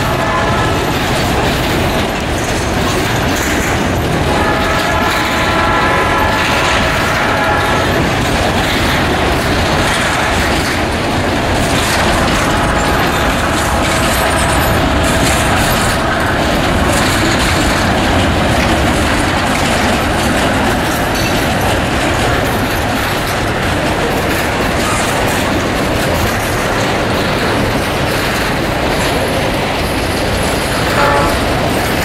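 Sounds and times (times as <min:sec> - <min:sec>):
locomotive horn: 0:00.0 - 0:01.0, 0:04.3 - 0:08.1, 0:12.2 - 0:16.2, 0:30.8 - 0:31.7
train wheels clattering over rails: 0:00.0 - 0:32.0.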